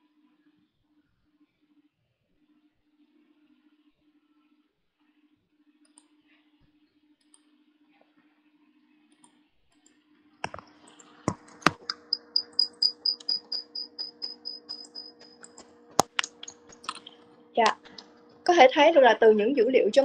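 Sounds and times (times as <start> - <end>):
faint low hum: 0.0 - 20.0
computer keyboard typing: 10.4 - 18.1
sharp clicks: 10.4 - 18.2.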